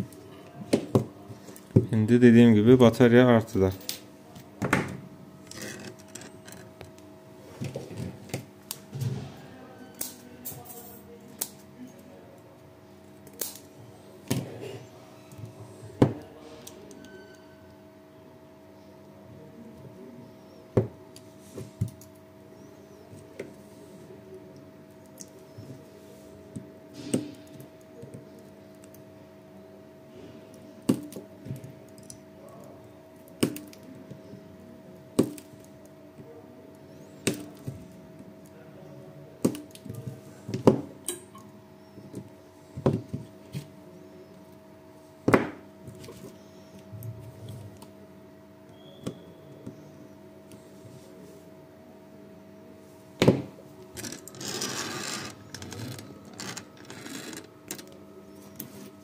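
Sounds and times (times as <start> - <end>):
electrical hum: 0.0 - 59.0
spot welder snaps: 13.3 - 13.7.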